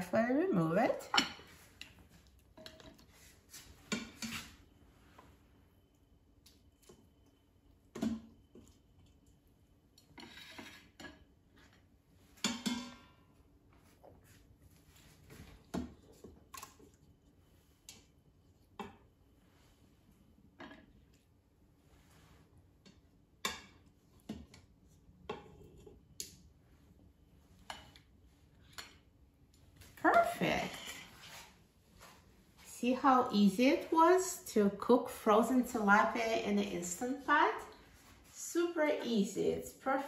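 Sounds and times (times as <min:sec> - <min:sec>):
utensil scraping in metal pot: 0:02.6 - 0:04.6, 0:10.2 - 0:11.0.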